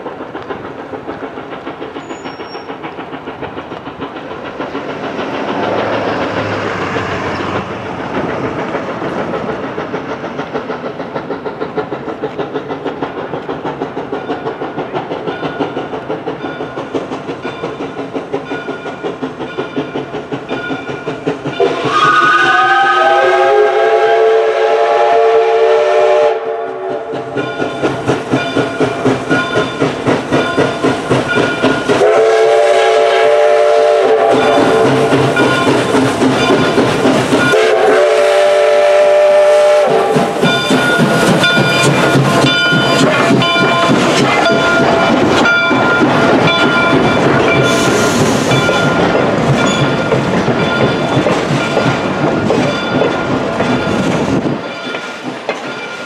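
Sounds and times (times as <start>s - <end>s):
steam locomotive exhaust chuffing: 0.0s - 56.0s
train wheels clacking on rail joints: 0.0s - 56.0s
steam whistle: 21.6s - 27.1s, 32.0s - 35.5s, 37.4s - 41.1s.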